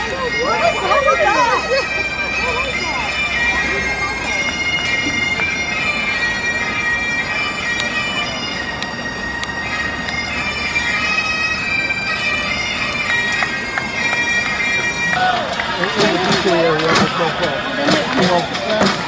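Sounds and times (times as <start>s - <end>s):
reedy bagpipe-like music over drone: 0.0s - 19.0s.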